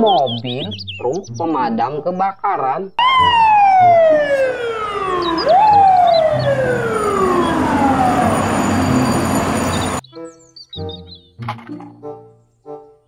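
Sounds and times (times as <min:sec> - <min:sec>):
fire truck siren wailing: 0:03.0 - 0:10.0.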